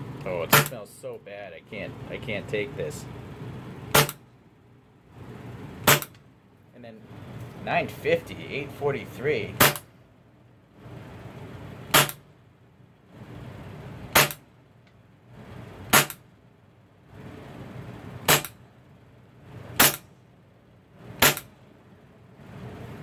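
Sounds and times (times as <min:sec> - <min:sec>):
airsoft pistol shots: 0:00.5 - 0:00.8, 0:03.9 - 0:04.2, 0:05.8 - 0:06.1, 0:09.6 - 0:09.9, 0:11.9 - 0:12.2, 0:14.1 - 0:14.4, 0:15.9 - 0:16.2, 0:18.2 - 0:18.6, 0:19.8 - 0:20.1, 0:21.2 - 0:21.5.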